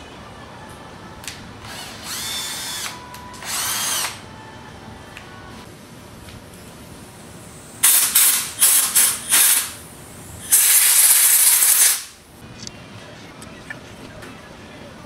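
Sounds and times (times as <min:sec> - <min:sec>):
air blow gun hissing: 0:07.4 - 0:12.2.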